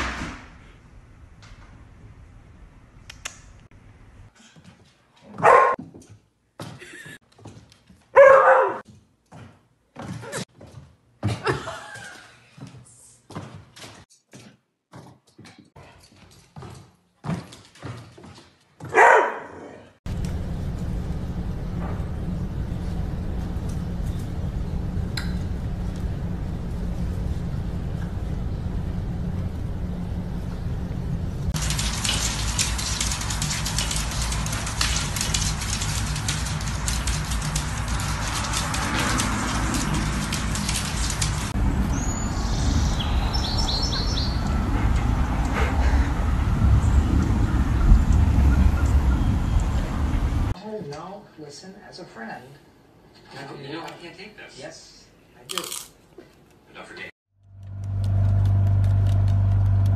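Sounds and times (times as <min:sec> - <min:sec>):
dog barking: 0:05.3 - 0:05.8, 0:08.2 - 0:08.8, 0:18.8 - 0:19.9
steady low hum: 0:20.1 - 0:42.0
steady low rumble: 0:20.1 - 0:50.5.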